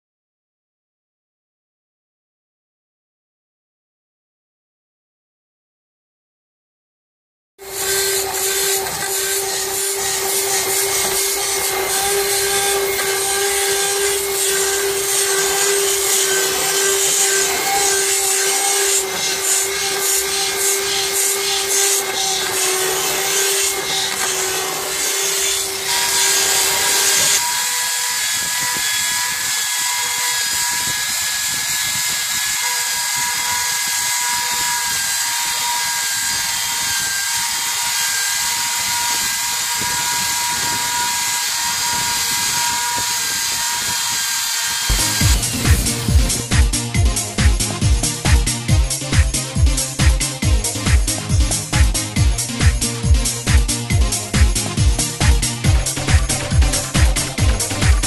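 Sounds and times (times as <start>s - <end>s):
electric drill whine: 7.6s - 50.4s, 51.0s - 58.0s
disc scraping hull: 7.7s - 27.4s, 44.9s - 46.6s.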